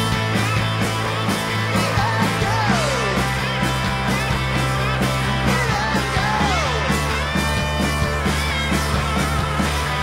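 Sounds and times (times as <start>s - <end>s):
bass guitar: 0.0s - 10.0s
steady drum beat: 0.0s - 10.0s.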